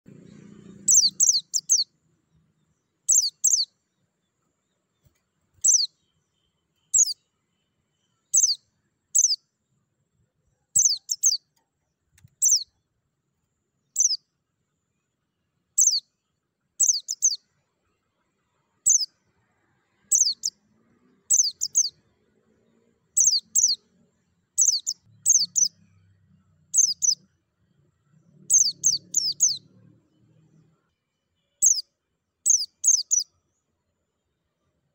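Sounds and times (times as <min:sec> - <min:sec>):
bird giving high sharp chirps: 0:00.8 - 0:01.8, 0:03.1 - 0:03.7, 0:05.6 - 0:05.9, 0:09.2 - 0:09.4, 0:10.8 - 0:11.4, 0:12.3 - 0:12.6, 0:16.8 - 0:17.4, 0:20.1 - 0:20.5, 0:21.3 - 0:21.9, 0:23.2 - 0:23.8, 0:24.6 - 0:25.7, 0:26.8 - 0:27.2, 0:28.5 - 0:29.6, 0:32.5 - 0:33.2.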